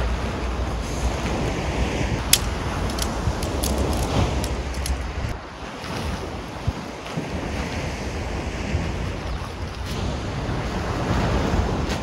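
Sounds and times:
sea surf: 0:00.0 - 0:12.0
wind buffeting microphone: 0:00.0 - 0:12.0
sharp clicks: 0:02.2 - 0:05.0.

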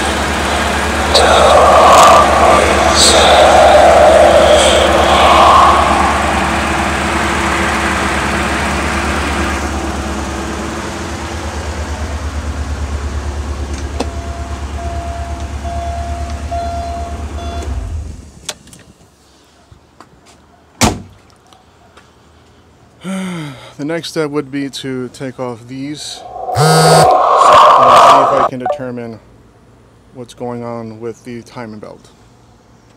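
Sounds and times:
car engine idling: 0:00.0 - 0:15.6
short beeps: 0:26.5 - 0:27.1, 0:28.5 - 0:28.9.

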